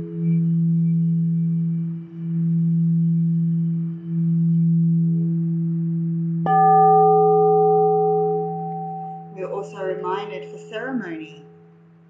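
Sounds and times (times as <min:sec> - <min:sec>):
low singing bowl hum: 0:00.0 - 0:12.0
high singing bowl ringing: 0:06.4 - 0:12.0.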